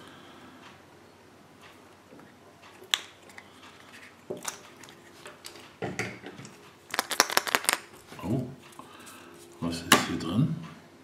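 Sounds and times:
plastic capsule clicking and tapping: 0:06.9 - 0:07.9.

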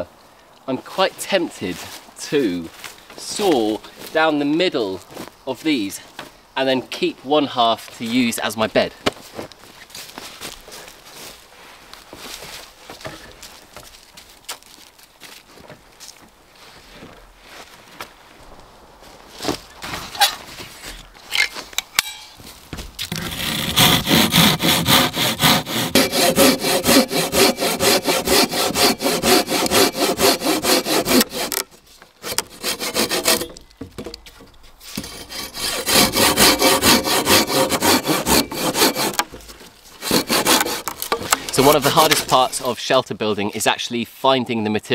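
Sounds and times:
rustling and light knocks: 0:09.0 - 0:18.2, 0:19.0 - 0:23.2
hand saw cutting wood: 0:23.0 - 0:33.6, 0:34.8 - 0:42.7.

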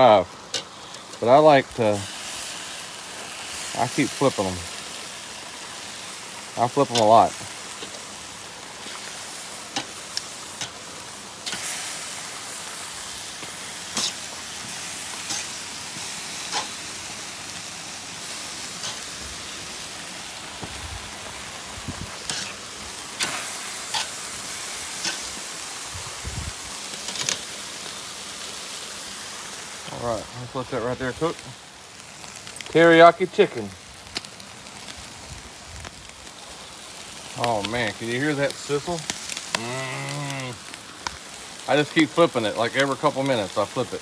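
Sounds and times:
chicken sizzling on a grill: 0:00.0 - 0:44.0
metal tongs clicking on grill: 0:27.0 - 0:27.4.

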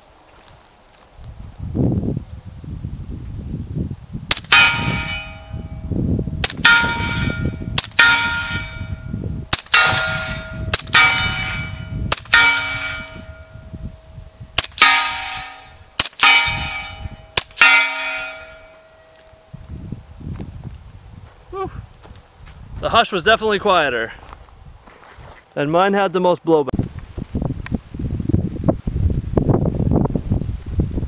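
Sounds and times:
suppressed pistol shots: 0:04.3 - 0:05.4, 0:06.4 - 0:06.9, 0:14.6 - 0:17.7
steel target ringing: 0:04.3 - 0:19.5.

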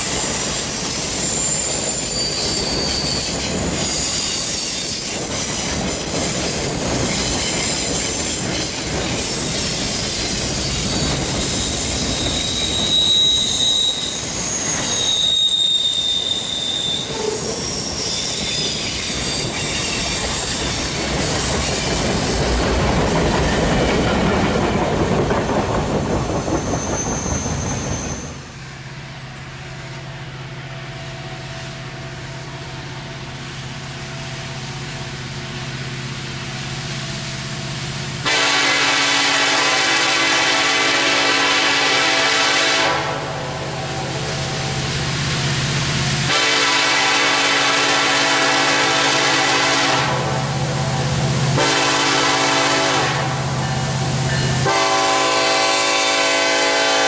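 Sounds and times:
wheel squeals: 0:00.0 - 0:22.3, 0:23.2 - 0:28.6
distant diesel locomotive hum: 0:00.0 - 0:57.0
freight train rolling past: 0:00.0 - 0:57.0.

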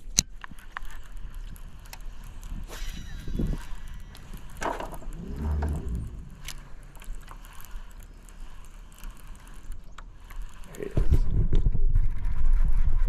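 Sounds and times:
fishing reel gears clicking: 0:00.0 - 0:11.3
brief low rumble: 0:04.9 - 0:06.9.

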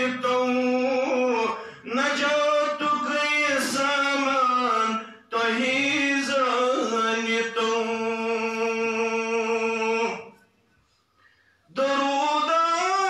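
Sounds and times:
man chanting melodically: 0:00.0 - 0:10.4, 0:11.7 - 0:13.0.

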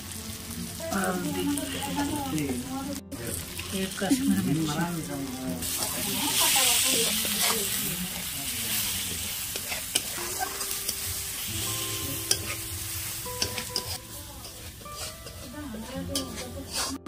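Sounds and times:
tomatoes and spices sizzling: 0:00.0 - 0:17.0
metal spatula scraping pan: 0:14.6 - 0:17.0.

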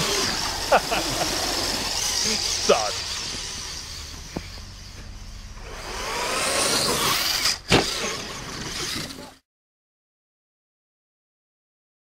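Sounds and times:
electric motor whine of toy truck: 0:00.0 - 0:09.4.

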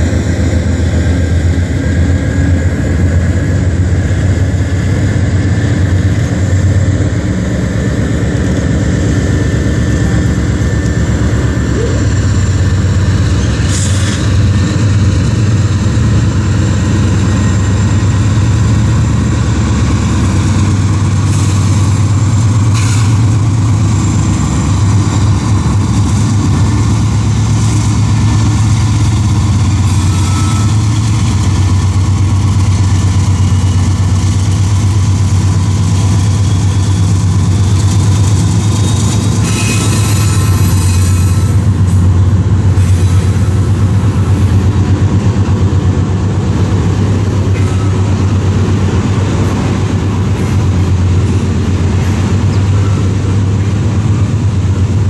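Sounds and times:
diesel locomotive engine drone: 0:00.0 - 0:55.0.

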